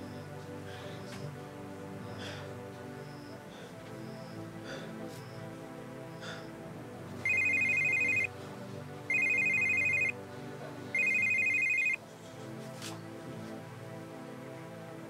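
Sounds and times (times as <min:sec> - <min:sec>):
soft background music: 0:00.0 - 0:15.0
mobile phone ringing: 0:07.2 - 0:08.3, 0:09.1 - 0:10.1, 0:11.0 - 0:12.0.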